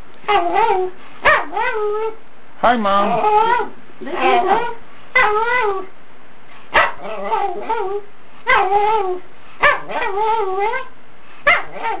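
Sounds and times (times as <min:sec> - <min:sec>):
dog howling: 0:00.3 - 0:02.2, 0:03.0 - 0:05.9, 0:07.0 - 0:10.9.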